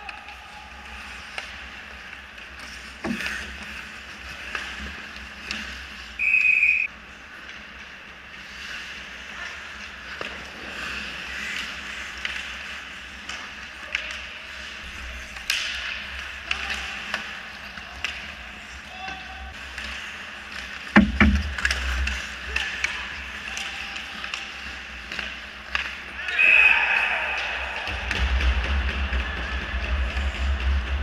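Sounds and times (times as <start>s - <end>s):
hockey sticks and puck clacking: 0.0s - 31.0s
skate blades scraping ice: 0.8s - 26.5s
shrill whistle blast: 6.2s - 6.9s.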